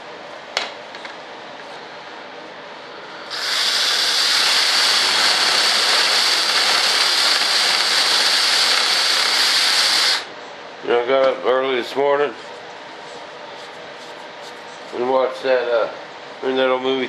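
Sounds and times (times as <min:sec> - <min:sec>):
drill boring through wood: 0:03.3 - 0:10.3.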